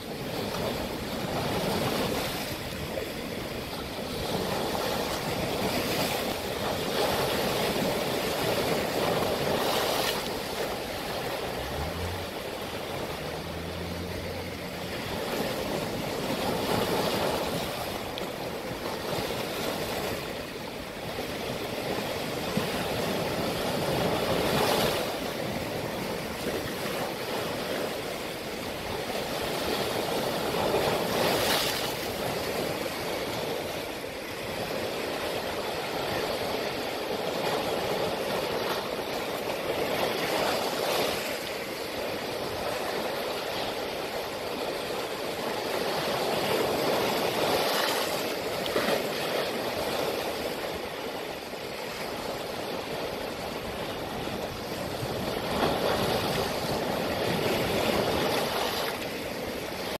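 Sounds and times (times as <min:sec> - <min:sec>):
sea waves breaking on rock: 0:00.0 - 1:00.0.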